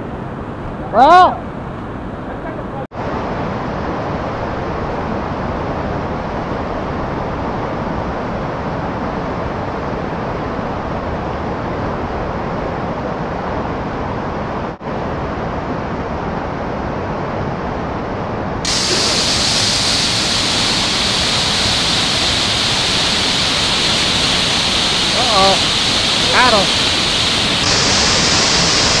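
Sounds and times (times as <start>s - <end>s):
waterfall hissing: 18.7s - 29.0s
whitewater rushing over rocks: 18.7s - 29.0s.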